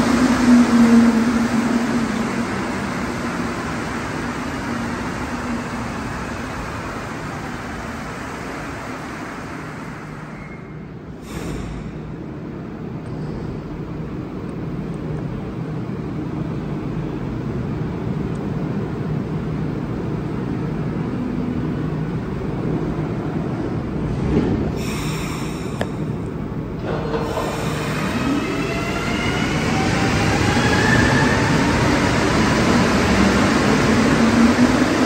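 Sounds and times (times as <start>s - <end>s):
metro train running hum: 0.0s - 35.0s.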